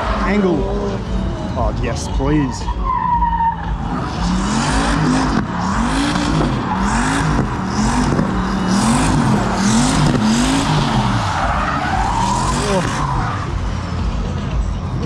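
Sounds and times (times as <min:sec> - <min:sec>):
car engine revving: 0:00.0 - 0:15.0
tyre screech: 0:02.5 - 0:13.6.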